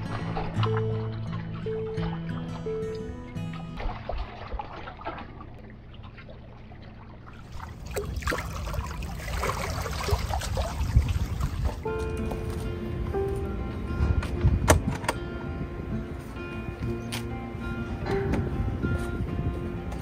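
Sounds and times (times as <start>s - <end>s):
seawater lapping and splashing: 0.0s - 13.2s
background music: 11.8s - 20.0s.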